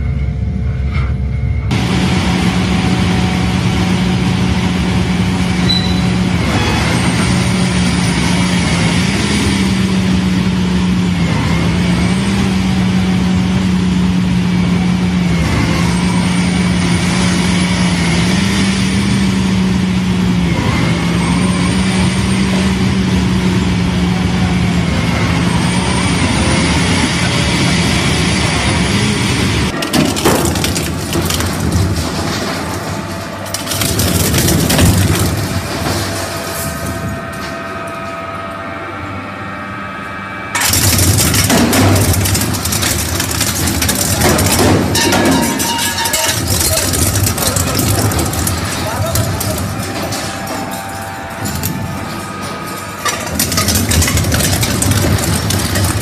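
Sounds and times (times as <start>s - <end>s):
crusher machine drone: 0.0s - 56.0s
grinding clatter: 25.0s - 38.1s, 40.6s - 56.0s.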